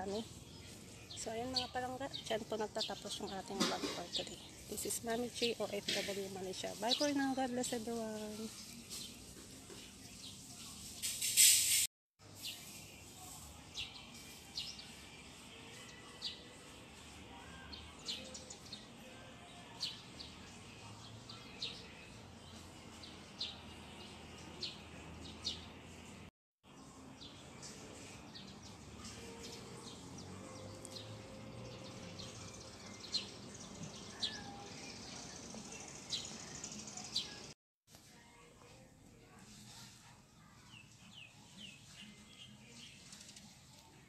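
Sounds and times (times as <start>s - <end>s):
small birds chirping: 0.0s - 11.2s, 26.7s - 37.6s, 40.6s - 44.0s
faint outdoor background noise: 0.0s - 44.0s.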